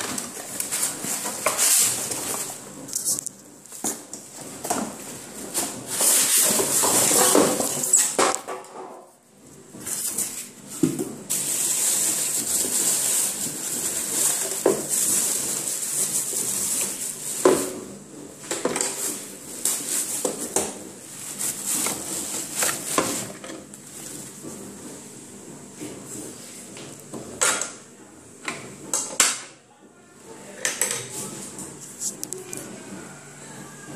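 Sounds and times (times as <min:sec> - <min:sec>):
plastic wrapping crinkling: 0:00.0 - 0:03.8, 0:11.3 - 0:17.8, 0:18.9 - 0:24.4.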